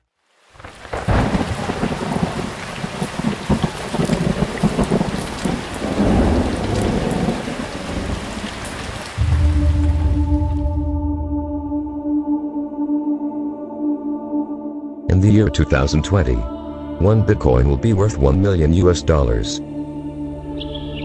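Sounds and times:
rain falling: 0:00.2 - 0:10.8
thunder rumbling: 0:00.6 - 0:12.1.

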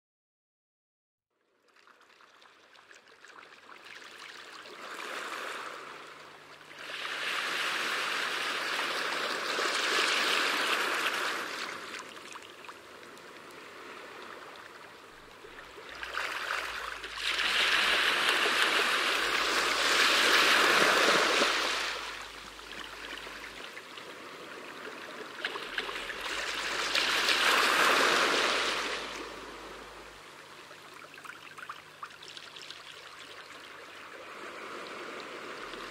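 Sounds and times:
rushing water: 0:14.1 - 0:35.9.

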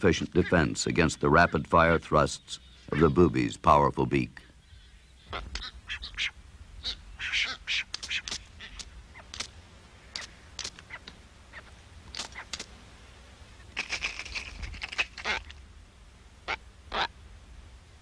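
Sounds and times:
seabirds giving sharp calls: 0:00.1 - 0:03.9, 0:04.6 - 0:12.7, 0:13.6 - 0:15.6, 0:16.4 - 0:17.2.

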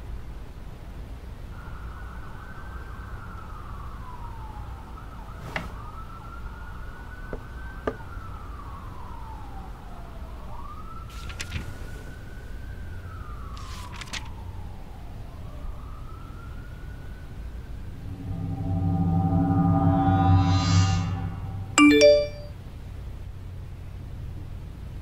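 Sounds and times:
emergency siren wailing: 0:01.6 - 0:11.1, 0:12.9 - 0:21.9
low steady rumble: 0:17.8 - 0:22.5.

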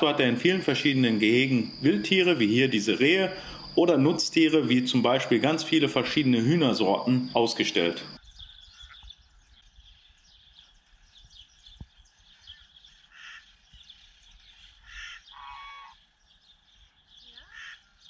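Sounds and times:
birds chirping and calling: 0:06.2 - 0:18.0.

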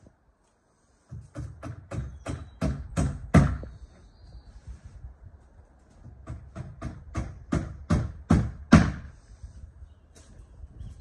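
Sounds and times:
hammer blows on wood: 0:01.1 - 0:03.8, 0:06.1 - 0:09.3.

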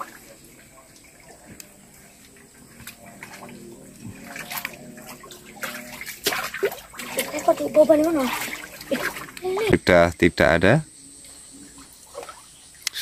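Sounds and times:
muddy water sloshing and splashing: 0:00.0 - 0:09.8, 0:11.2 - 0:13.0.

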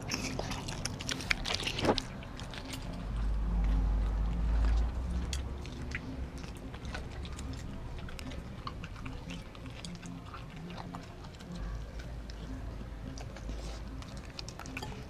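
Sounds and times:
dog chewing wet food: 0:00.0 - 0:15.0.

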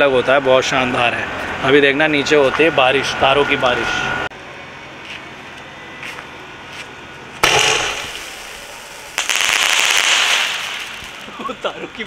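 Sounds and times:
firework crackling shower: 0:07.4 - 0:11.9
firework fuse sputtering: 0:07.4 - 0:12.0
loud firework report: 0:07.4 - 0:12.0.

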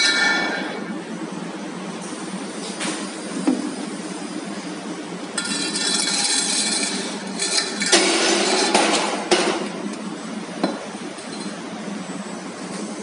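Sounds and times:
metal tube scraping on metal: 0:05.4 - 0:08.8.

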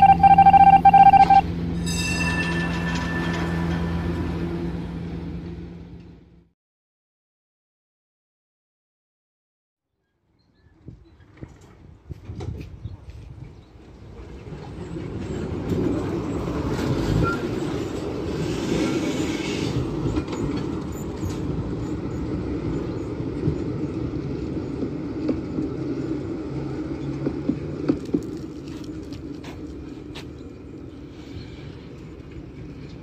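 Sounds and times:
tram wheels running on rails: 0:01.4 - 0:06.4, 0:11.1 - 0:33.0
tram clicks: 0:19.8 - 0:31.0.

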